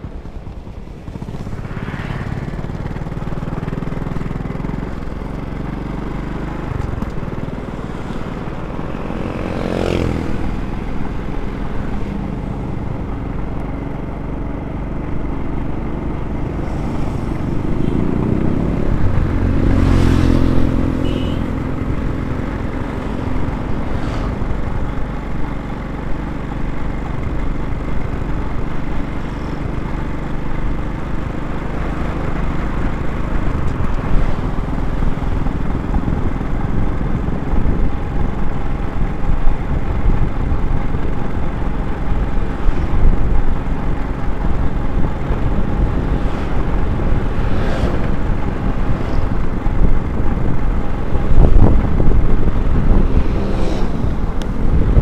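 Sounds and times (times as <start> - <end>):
road noise: 0.0 - 55.0
scooter engine hum: 0.0 - 55.0
wind noise: 31.8 - 55.0.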